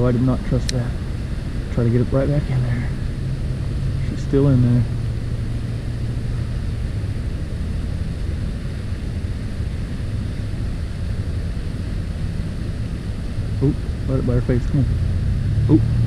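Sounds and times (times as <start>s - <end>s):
outdoor background rumble: 0.0s - 16.0s.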